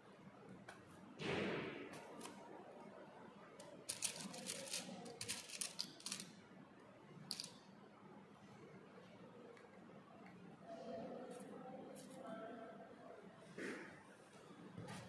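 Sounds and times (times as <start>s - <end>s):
paper strips crinkling: 3.7s - 6.3s.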